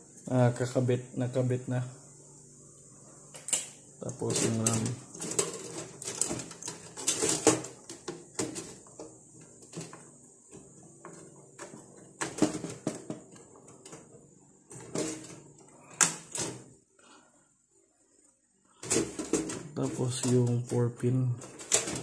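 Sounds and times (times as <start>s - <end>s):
clicks and rattles in computer case: 3.4s - 14.1s, 14.7s - 16.7s, 18.8s - 20.8s, 21.4s - 22.0s.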